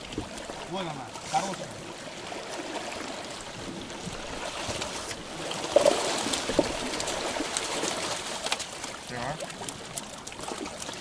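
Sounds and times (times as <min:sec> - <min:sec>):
waves lapping on rocky shore: 0:00.0 - 0:11.0
wind: 0:00.0 - 0:11.0
short sharp splashes or knocks: 0:04.4 - 0:11.0.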